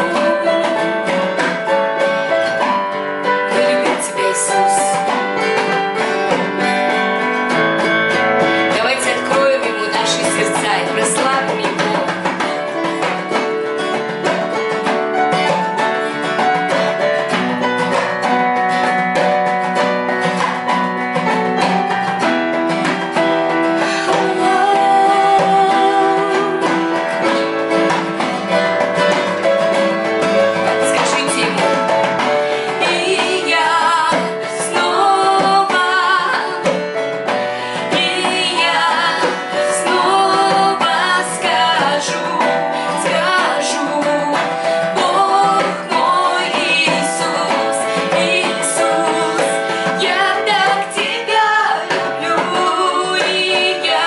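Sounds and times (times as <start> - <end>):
women singing worship song: 0.0 - 2.2, 3.5 - 5.2, 8.8 - 13.1, 23.7 - 27.4, 32.4 - 54.0
keyboard: 0.0 - 54.0
strummed acoustic guitar: 0.0 - 54.0.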